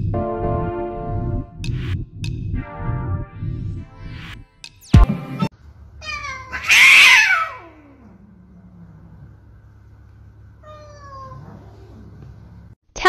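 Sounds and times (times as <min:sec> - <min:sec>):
cat meowing: 0:06.0 - 0:08.2, 0:10.6 - 0:12.1
cat yowling: 0:06.0 - 0:08.8, 0:10.6 - 0:12.1.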